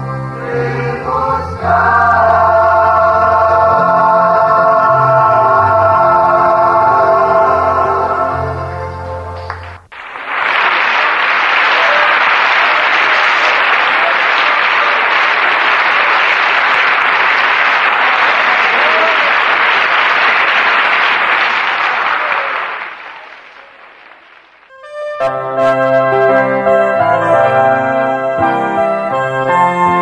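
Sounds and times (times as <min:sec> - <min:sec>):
brass music: 0:00.0 - 0:09.9, 0:24.7 - 0:30.0
crowd applauding: 0:09.4 - 0:25.3.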